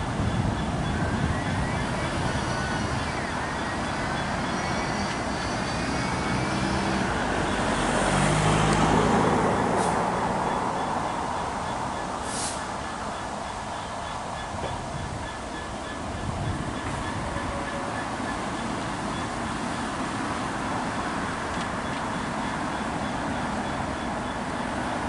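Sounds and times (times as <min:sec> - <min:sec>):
diesel locomotive engine running: 0:00.0 - 0:25.0
road traffic noise: 0:00.0 - 0:25.0.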